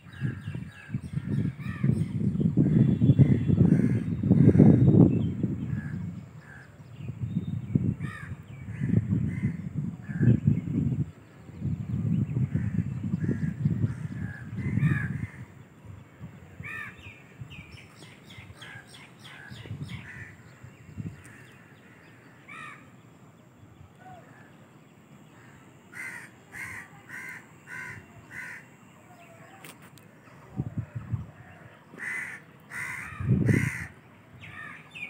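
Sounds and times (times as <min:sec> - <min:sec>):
crows cawing: 0:08.0 - 0:10.3, 0:12.6 - 0:15.5, 0:16.6 - 0:17.0, 0:18.6 - 0:20.4, 0:21.2 - 0:22.9, 0:25.4 - 0:28.7, 0:31.4 - 0:34.9.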